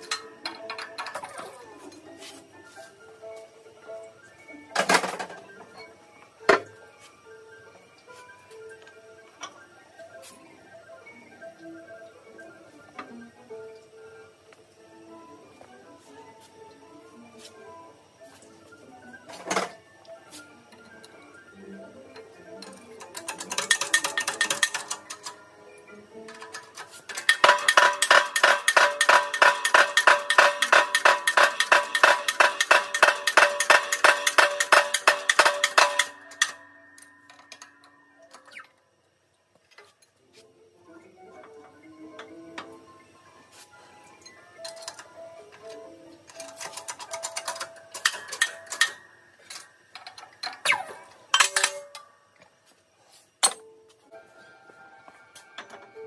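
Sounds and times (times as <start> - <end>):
rapid metallic clinks in a press: 22.6 - 25.4, 26.3 - 36.6, 46.3 - 50.7
ringing metal tones: 26.5 - 38.8.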